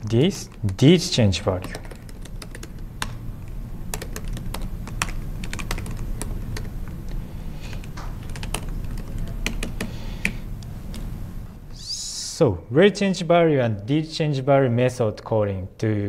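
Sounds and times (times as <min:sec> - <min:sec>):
steady low hum: 0:00.0 - 0:16.0
laptop keyboard typing: 0:00.2 - 0:11.1.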